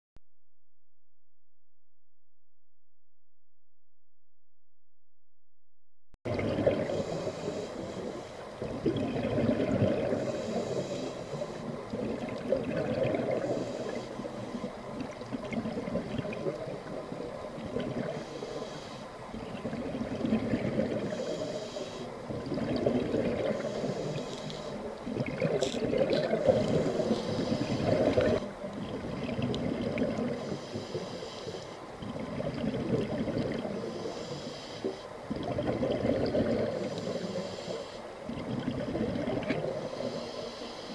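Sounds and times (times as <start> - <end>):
diver breathing through regulator: 6.8 - 8.5, 10.1 - 11.7, 18.1 - 19.2, 21.0 - 22.2, 23.4 - 24.9, 26.4 - 28.4, 30.3 - 31.8, 33.8 - 35.2, 36.6 - 38.1, 39.7 - 40.9
bubbling rush of exhaled air: 8.6 - 10.7, 35.4 - 37.2.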